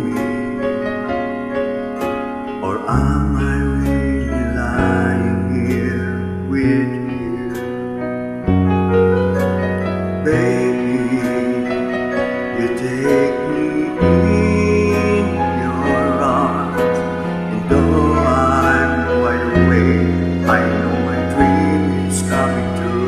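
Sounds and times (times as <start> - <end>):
man singing: 0.0 - 1.1, 2.6 - 8.1, 10.2 - 23.0
piano and keyboard chords: 0.0 - 23.0.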